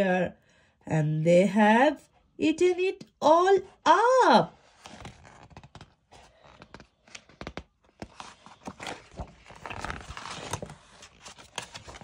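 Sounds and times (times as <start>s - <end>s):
book pages rustling: 4.6s - 12.0s.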